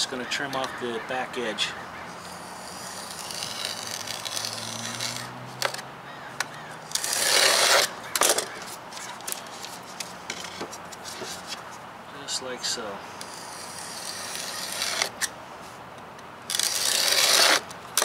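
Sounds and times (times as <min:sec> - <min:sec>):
knife scraping edge banding: 0:02.0 - 0:05.8, 0:06.6 - 0:11.8, 0:13.2 - 0:15.3, 0:16.5 - 0:18.0.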